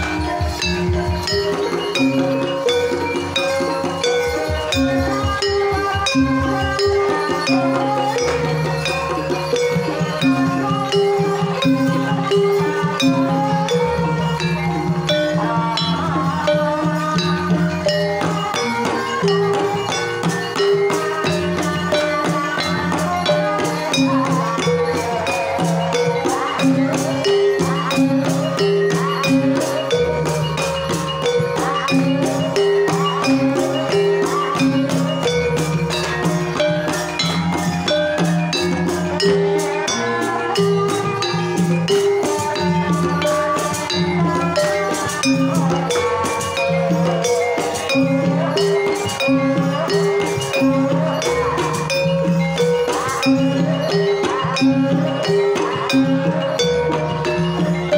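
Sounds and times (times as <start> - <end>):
hand drums: 0.0 - 57.9
woman singing through microphone: 4.4 - 9.2, 9.9 - 29.6, 39.0 - 41.6, 42.2 - 56.7.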